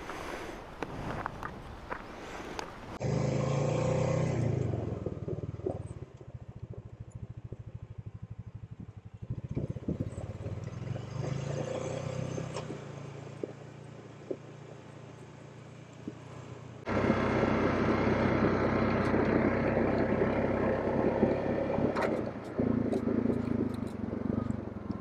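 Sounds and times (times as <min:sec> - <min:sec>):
wind: 0:00.0 - 0:25.0
atv engine: 0:02.9 - 0:25.0
knocks and rattles of quad: 0:03.0 - 0:25.0.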